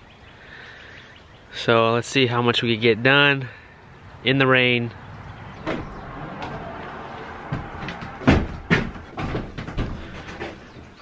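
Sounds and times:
loud sharp knocks: 5.6 - 6.8, 7.4 - 10.6.

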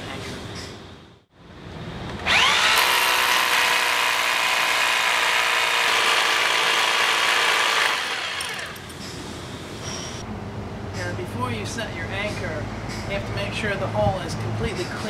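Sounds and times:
rotary hammer drilling concrete: 2.2 - 9.0.

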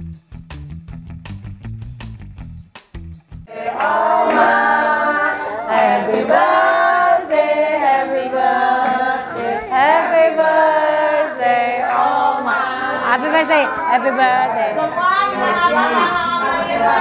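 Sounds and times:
group singing a birthday song: 3.5 - 17.0.

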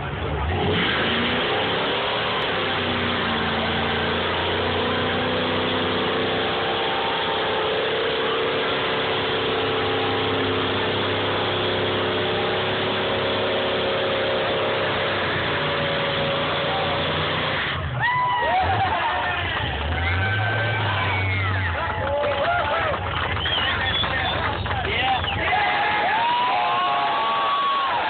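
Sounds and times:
car engine at high revs: 0.0 - 22.0.

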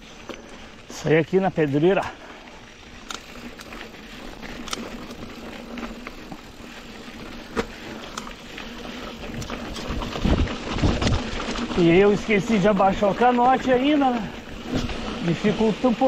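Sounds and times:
bike tyres on dirt: 0.0 - 16.0
bike knocks and rattles: 4.4 - 15.1.

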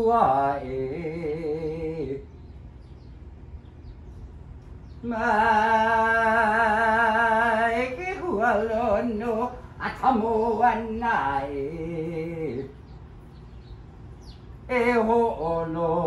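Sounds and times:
man chanting: 5.0 - 12.8, 14.7 - 16.0.

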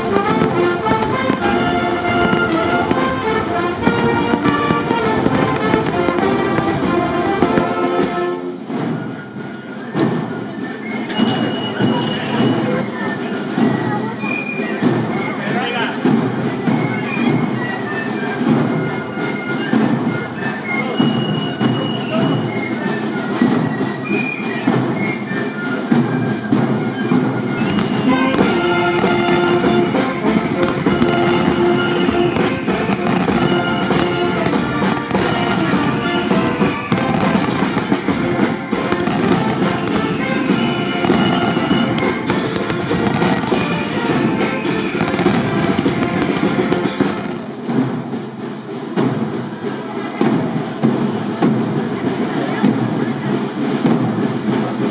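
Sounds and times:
background music: 0.0 - 9.9, 26.6 - 47.4
fireworks bangs and crackles: 0.0 - 54.9.

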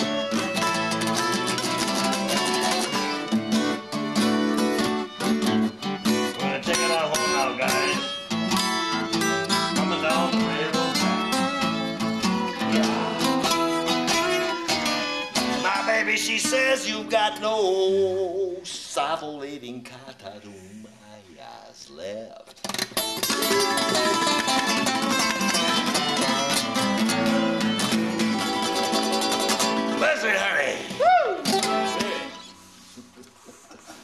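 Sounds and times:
acoustic guitar picking and strumming: 0.0 - 19.0, 22.5 - 33.0.

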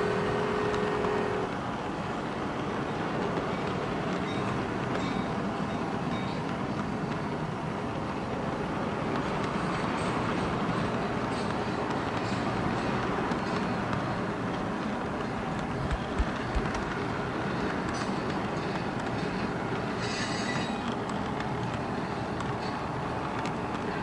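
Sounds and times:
two-note train horn: 0.0 - 1.6
model train wheels rumbling on rails: 0.0 - 24.0
clicking at rail joints: 0.6 - 24.0.

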